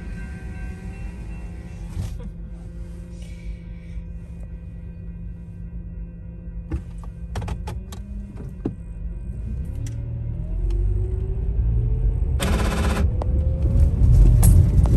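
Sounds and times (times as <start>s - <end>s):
car engine accelerating: 6.8s - 14.9s.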